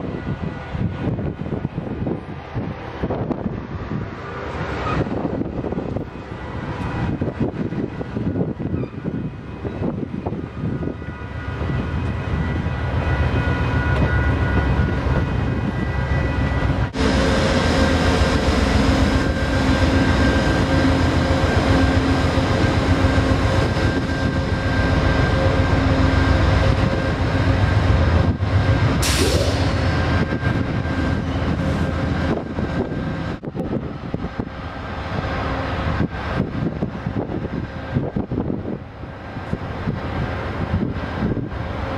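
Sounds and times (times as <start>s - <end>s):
diesel locomotive engine drone: 0.0s - 41.9s
passenger train rolling past: 0.0s - 41.9s
brief hiss: 29.0s - 29.8s.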